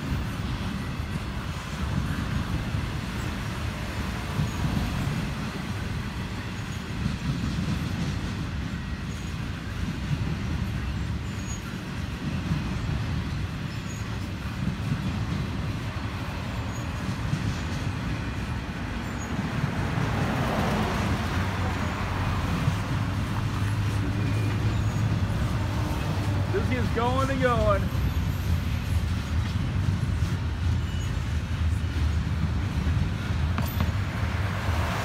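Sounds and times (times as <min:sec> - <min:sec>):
freight train wheels rumbling: 0:00.0 - 0:35.0.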